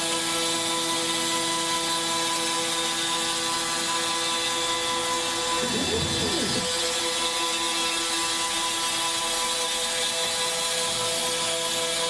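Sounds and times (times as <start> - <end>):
router spindle whine: 3.3 - 8.1
hiss of cutting: 5.3 - 6.7.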